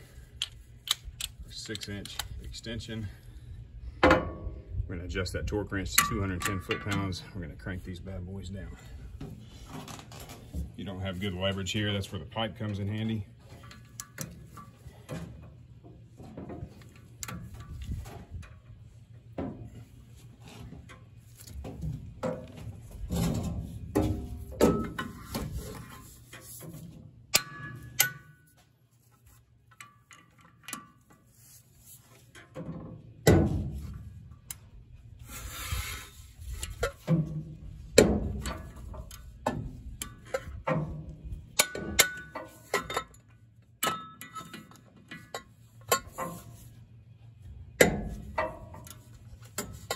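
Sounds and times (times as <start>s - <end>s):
metal clinks and knocks: 36.6s - 46.6s.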